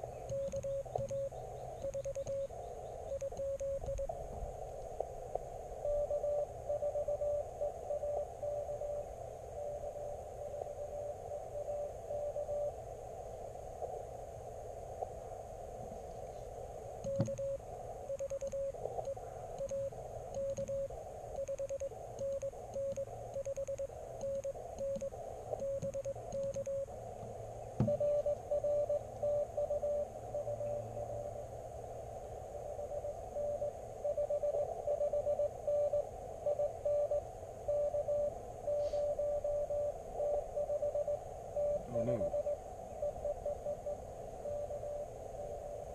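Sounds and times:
receiver noise hiss: 0:00.0 - 0:45.9
morse code beeps: 0:00.2 - 0:04.1, 0:05.8 - 0:09.0, 0:17.0 - 0:26.9, 0:27.8 - 0:31.4, 0:32.6 - 0:45.8.

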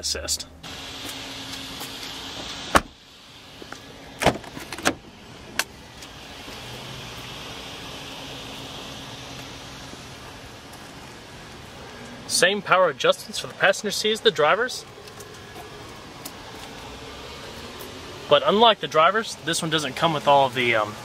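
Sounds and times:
steady background noise: 0:00.0 - 0:21.0
car door shutting thump: 0:02.7 - 0:03.0, 0:04.2 - 0:05.0
car door clicks and knocks: 0:04.2 - 0:05.0.

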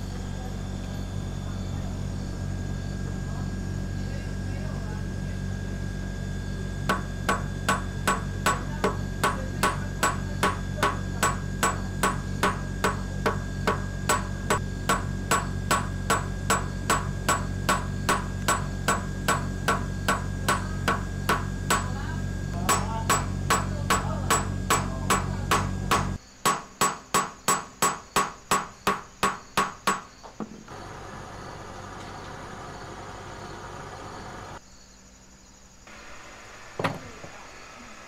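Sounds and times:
low hum: 0:00.0 - 0:26.2.

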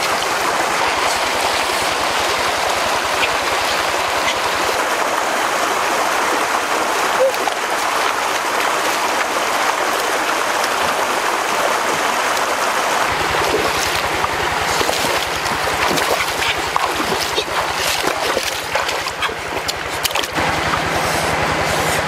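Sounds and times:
person wading and splashing: 0:00.0 - 0:22.0
stream water over rocks: 0:00.0 - 0:22.0
low pulsing hum: 0:13.1 - 0:22.0.

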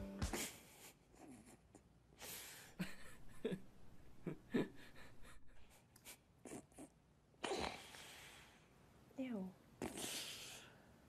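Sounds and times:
person breathing quietly: 0:07.5 - 0:08.8, 0:09.9 - 0:11.0
faint mouth sounds: 0:09.8 - 0:10.6.

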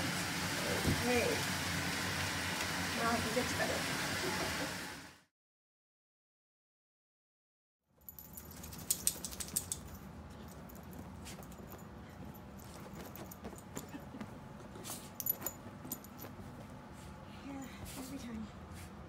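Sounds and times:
small metallic jingling: 0:08.0 - 0:14.0, 0:15.0 - 0:16.6.

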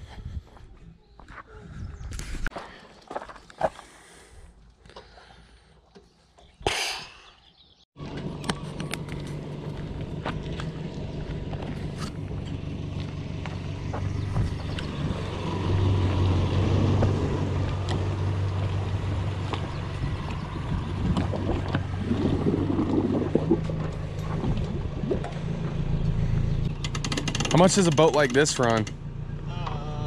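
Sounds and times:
motor boat engine humming: 0:08.0 - 0:30.0.

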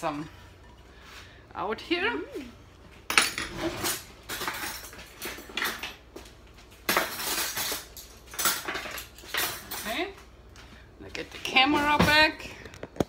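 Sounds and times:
dishes and cutlery clattering: 0:03.1 - 0:06.0, 0:06.9 - 0:10.1.

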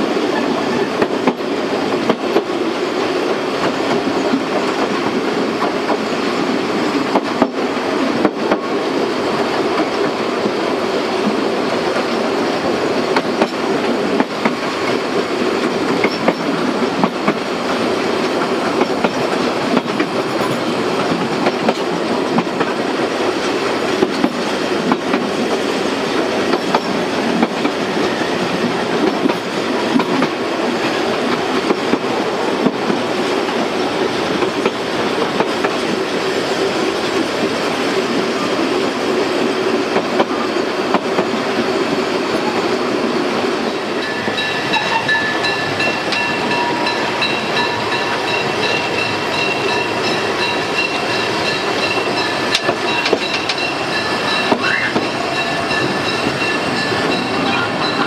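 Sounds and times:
rail clicks and knocks: 0:00.0 - 0:58.0
train rolling rumble: 0:00.0 - 0:58.0
wheel squeal: 0:51.8 - 0:57.3.

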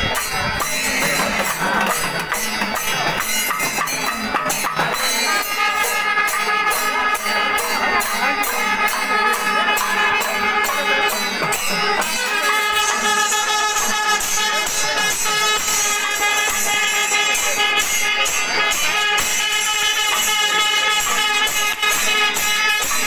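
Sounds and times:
cymbal clashes: 0:00.0 - 0:23.0
drums beating densely: 0:00.0 - 0:23.0
horns with long held tones: 0:05.1 - 0:23.0.

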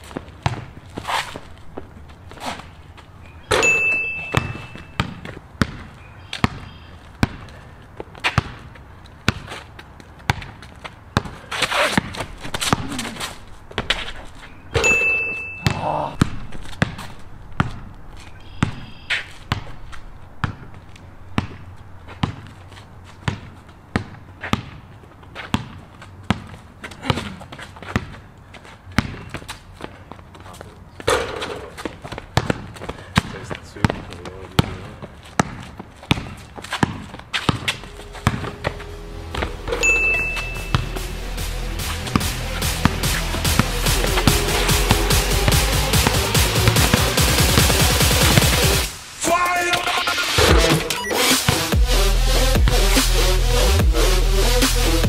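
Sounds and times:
basketball bouncing on concrete: 0:00.0 - 0:02.6, 0:03.4 - 0:30.3, 0:31.0 - 0:41.2, 0:41.8 - 0:48.9
ball hitting ringing steel rim: 0:03.5 - 0:05.2, 0:14.7 - 0:15.9, 0:39.4 - 0:41.0.

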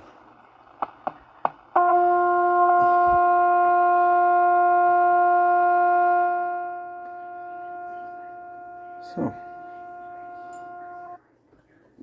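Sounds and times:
radio speaker test tone: 0:06.4 - 0:11.2.

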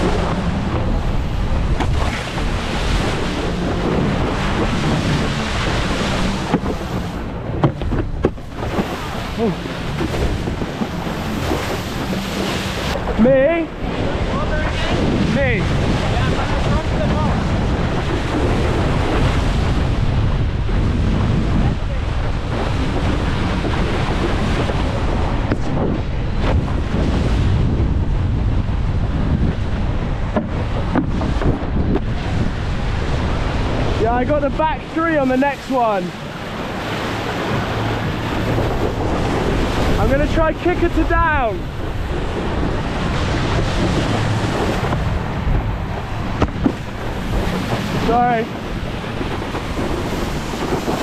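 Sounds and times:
rushing water: 0:00.0 - 0:51.0
wind buffeting microphone: 0:00.0 - 0:51.0.

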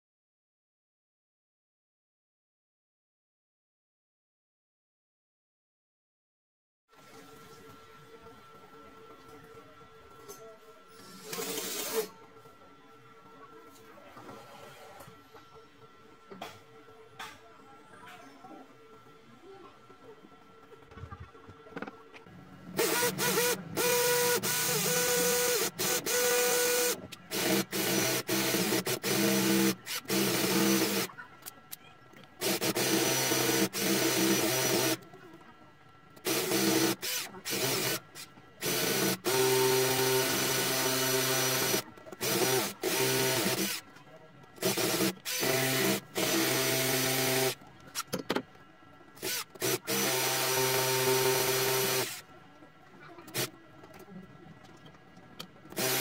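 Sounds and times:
drill boring into concrete: 0:22.8 - 0:31.1, 0:32.4 - 0:35.0, 0:36.2 - 0:43.8, 0:44.6 - 0:47.6, 0:49.2 - 0:52.2, 0:55.7 - 0:56.0.

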